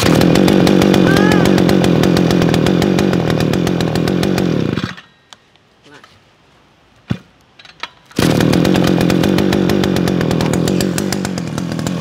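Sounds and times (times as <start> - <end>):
brush cutter engine running: 0.0 - 4.9, 8.2 - 12.0.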